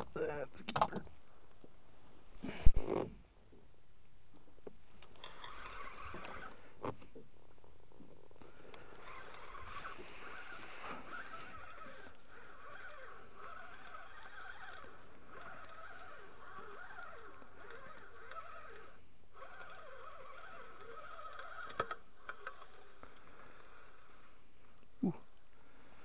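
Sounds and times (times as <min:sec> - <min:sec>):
sharp reel clicks: 0:05.2 - 0:06.6, 0:08.8 - 0:23.8
fishing reel whirring: 0:05.2 - 0:06.8, 0:08.5 - 0:24.2.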